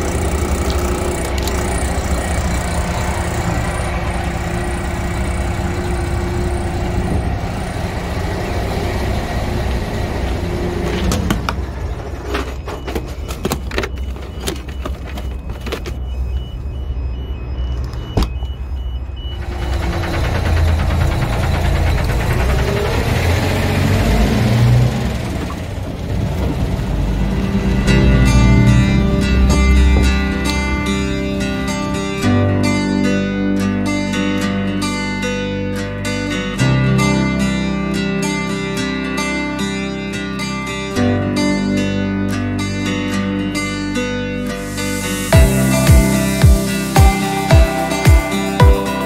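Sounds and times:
diesel engine idling: 0.0 - 33.4.

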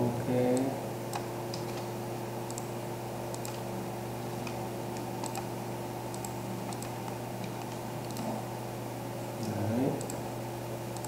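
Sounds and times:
mouse and keyboard clicks: 4.4 - 5.5, 6.1 - 8.3.

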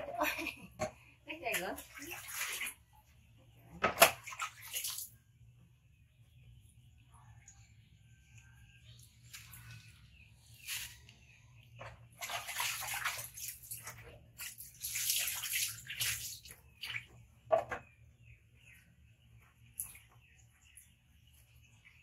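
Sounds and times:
water splashing in a plastic basin: 0.0 - 5.5, 11.8 - 17.8.

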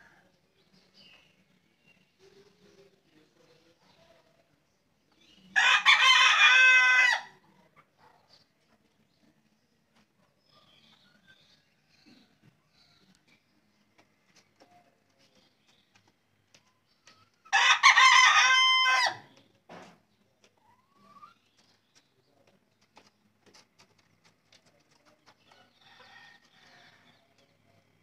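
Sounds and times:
rooster crowing: 5.6 - 7.3, 17.5 - 19.3.

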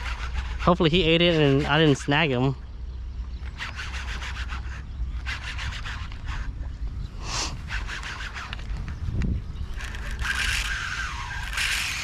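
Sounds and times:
fishing reel rasping click: 9.8 - 12.0.

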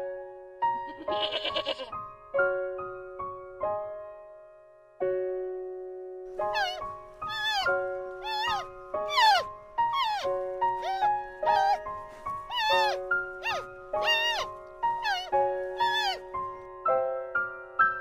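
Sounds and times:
piano music: 0.0 - 18.0
sheep bleating: 0.9 - 1.9
panda wavering high calls: 6.4 - 11.9, 12.5 - 16.3.

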